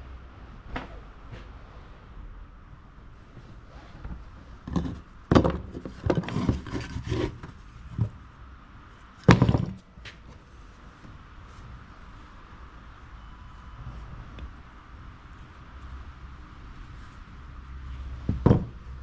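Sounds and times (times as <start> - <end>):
scrapes on wood: 5.8 - 8.1.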